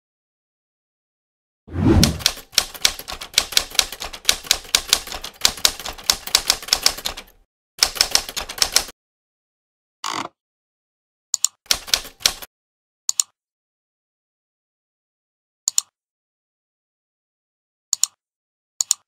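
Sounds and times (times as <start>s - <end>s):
keyboard typing: 1.8s - 8.9s, 11.4s - 12.5s.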